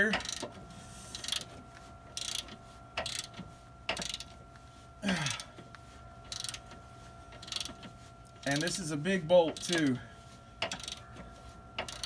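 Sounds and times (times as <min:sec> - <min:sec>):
ratchet wrench clicking: 0:00.2 - 0:00.5, 0:01.1 - 0:01.5, 0:02.2 - 0:03.3, 0:03.9 - 0:04.3, 0:06.3 - 0:06.6, 0:07.4 - 0:07.7, 0:09.6 - 0:09.9, 0:10.6 - 0:11.0, 0:11.8 - 0:12.0.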